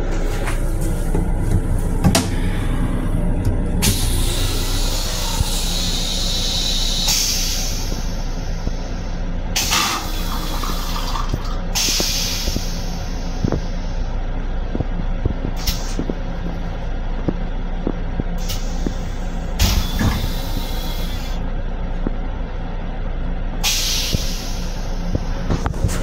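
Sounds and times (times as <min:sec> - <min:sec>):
low rumble of railcar: 0:00.0 - 0:26.0
toilet flushing: 0:09.6 - 0:13.2.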